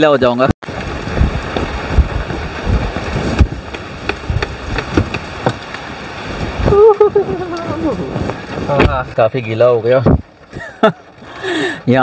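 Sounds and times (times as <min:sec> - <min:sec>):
heavy rain pouring: 0:00.0 - 0:12.0
knocks and taps on car door: 0:03.4 - 0:05.6.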